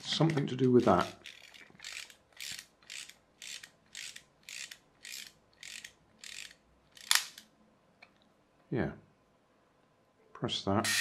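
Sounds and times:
toy clockwork ratcheting: 0:00.2 - 0:07.4.

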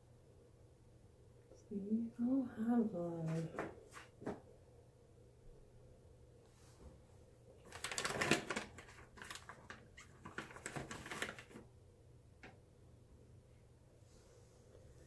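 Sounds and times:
peel-off mask crackling and tearing: 0:07.7 - 0:11.6.

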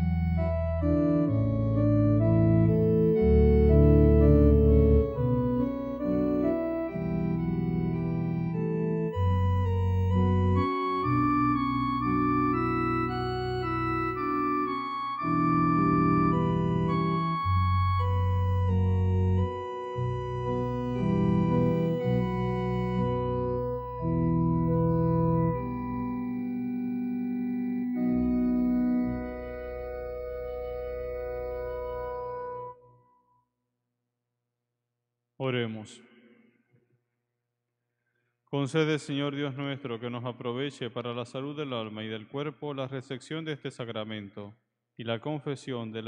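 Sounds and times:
organ playing slow chords: 0:00.0 - 0:32.8.

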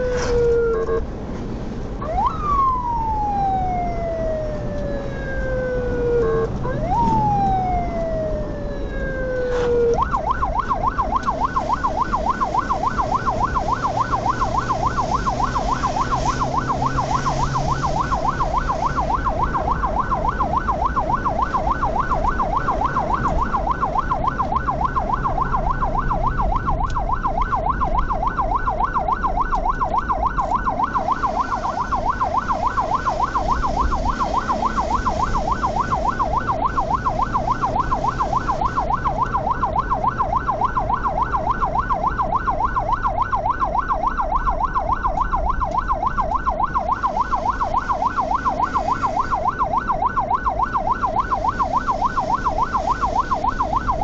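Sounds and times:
ambulance siren yelping: 0:00.0 - 0:01.1, 0:02.0 - 0:54.0
vehicle engine and tyres rumbling: 0:00.0 - 0:54.0.

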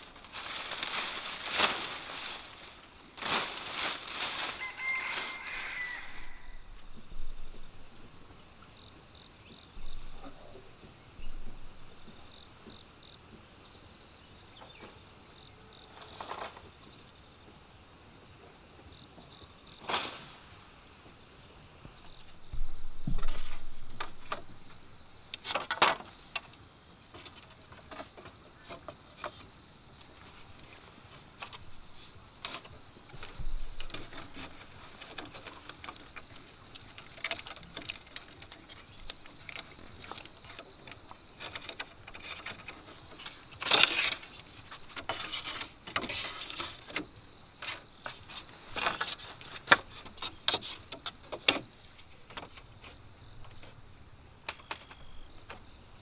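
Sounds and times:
cord rubbing and rustling: 0:27.1 - 0:51.7.

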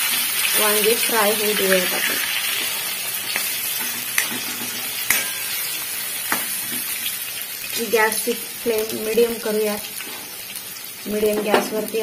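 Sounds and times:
vegetables sizzling in oil: 0:00.0 - 0:12.0
metal spatula tapping pan: 0:03.3 - 0:06.9.

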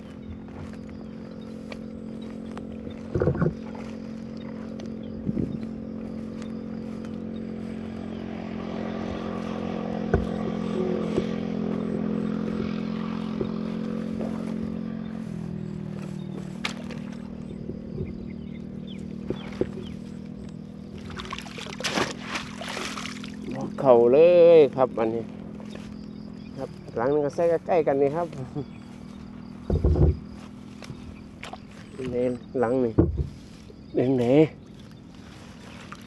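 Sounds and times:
small engine running: 0:00.0 - 0:36.0
thumps: 0:10.0 - 0:10.5, 0:32.9 - 0:33.4.

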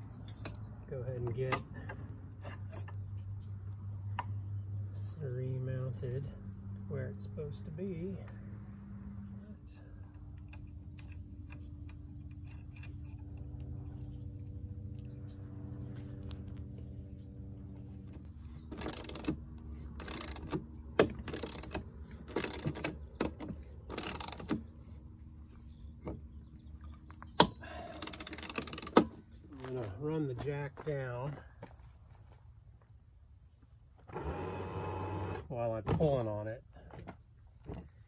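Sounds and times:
ratchet wrench ratcheting: 0:18.7 - 0:24.6, 0:27.9 - 0:29.1.

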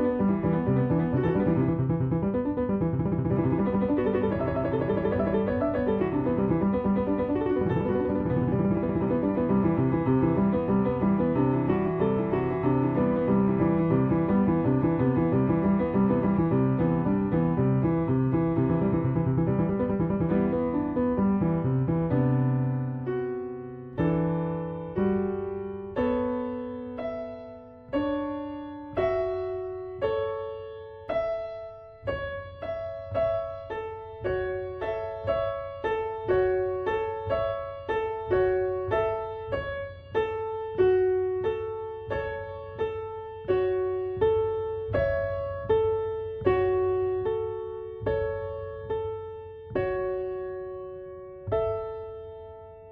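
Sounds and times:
solo piano melody: 0:00.0 - 0:52.9.

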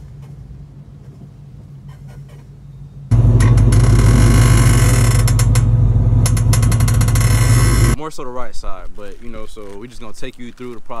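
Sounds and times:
low road hum: 0:00.0 - 0:08.0
car suspension creaking and clicking: 0:03.1 - 0:08.0.

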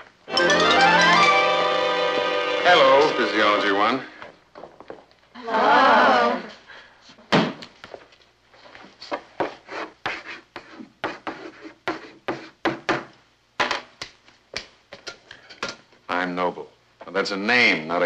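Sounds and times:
chalk scraping on blackboard: 0:09.4 - 0:12.6.

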